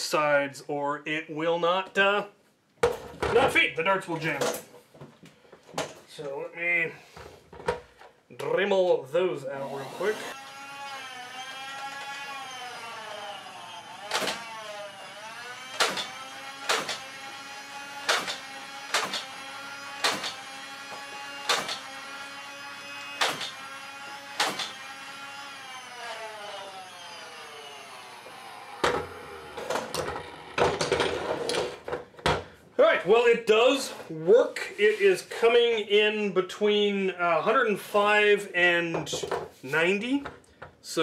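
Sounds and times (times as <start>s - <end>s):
rotary tool grinding plastic: 28.2s - 31.9s.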